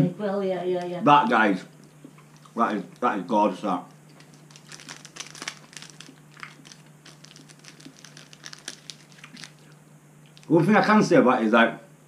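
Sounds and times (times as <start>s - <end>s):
plastic wrapper crinkling: 1.8s - 3.2s, 3.8s - 10.6s.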